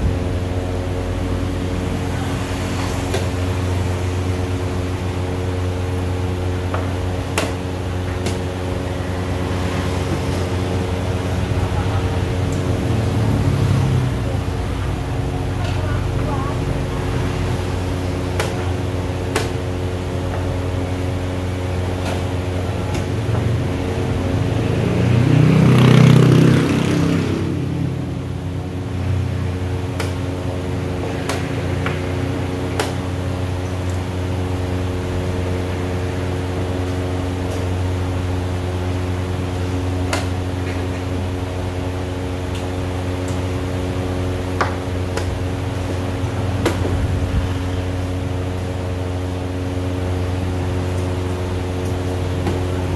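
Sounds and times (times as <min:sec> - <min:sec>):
loud rushing sound: 0:00.0 - 0:04.2
steady machine hum: 0:00.0 - 0:52.9.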